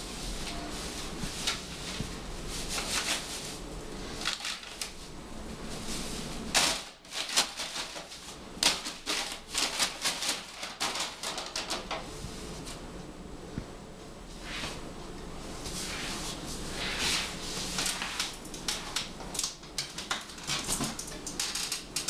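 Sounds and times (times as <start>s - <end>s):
paper bag crinkling: 1.4s - 5.1s, 5.8s - 12.0s.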